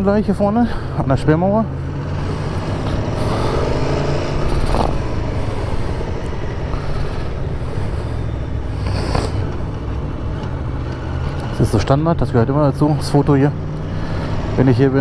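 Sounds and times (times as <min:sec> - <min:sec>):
motorcycle engine running: 0:01.4 - 0:11.7.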